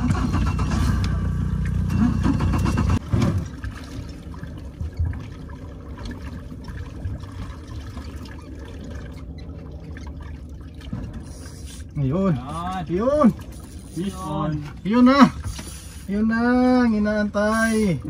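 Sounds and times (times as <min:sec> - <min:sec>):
boat engine humming: 0:00.0 - 0:18.0
water trickling and lapping: 0:00.0 - 0:18.0.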